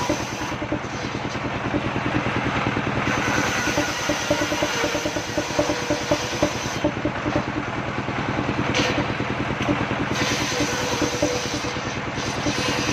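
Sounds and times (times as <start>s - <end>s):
saw blade cutting board: 0.0s - 1.5s, 3.0s - 7.5s, 8.7s - 12.9s
sawmill engine running: 0.0s - 12.9s.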